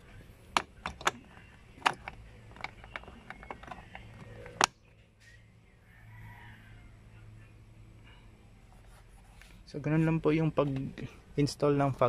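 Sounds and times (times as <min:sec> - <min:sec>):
plastic switch clicks and knocks: 0:00.5 - 0:04.8.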